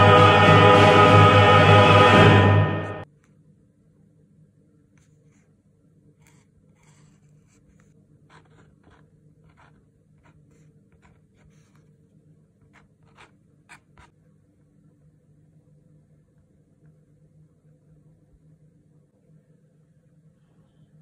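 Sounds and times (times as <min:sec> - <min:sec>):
marker pen scratching on canvas: 0:06.2 - 0:14.2.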